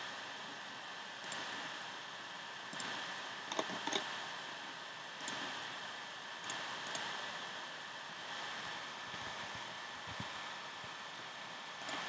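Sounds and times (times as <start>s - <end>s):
steady hiss: 0.0s - 12.0s
faint computer clicks: 1.2s - 1.5s, 2.7s - 4.1s, 5.2s - 5.4s, 11.8s - 12.0s.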